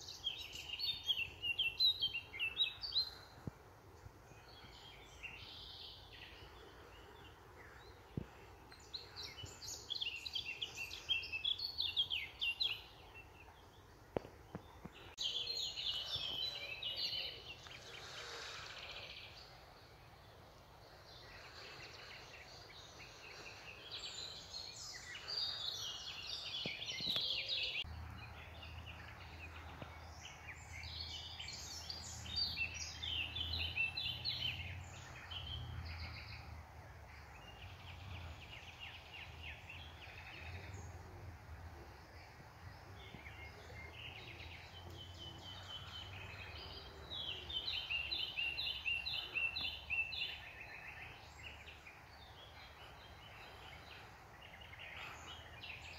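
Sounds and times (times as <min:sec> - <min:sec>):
songbirds twittering: 0:00.0 - 0:55.9.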